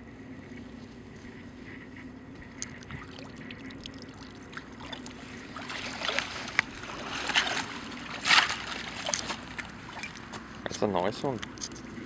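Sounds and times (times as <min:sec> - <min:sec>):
wading splashes through water: 0:02.6 - 0:10.4.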